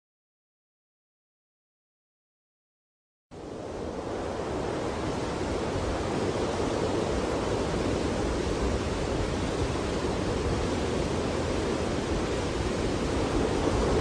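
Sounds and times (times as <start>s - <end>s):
steady rushing noise: 3.3s - 14.0s.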